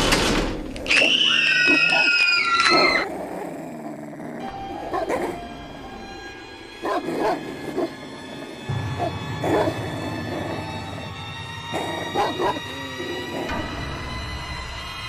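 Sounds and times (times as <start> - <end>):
long high cry: 0.9 - 3.1
faint musical drone: 3.2 - 15.0
dogs barking: 4.6 - 5.6, 6.7 - 11.1, 11.7 - 13.6.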